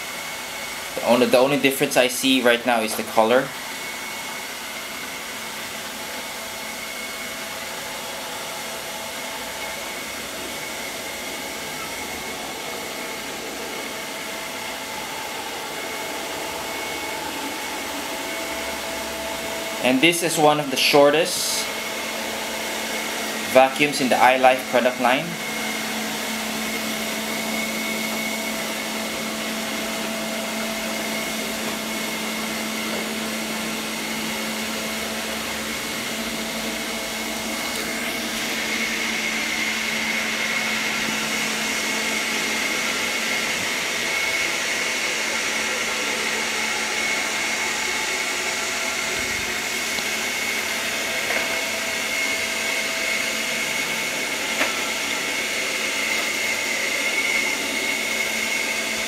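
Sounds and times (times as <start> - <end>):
robot vacuum motor whine: 3.3 - 19.8, 20.5 - 59.0.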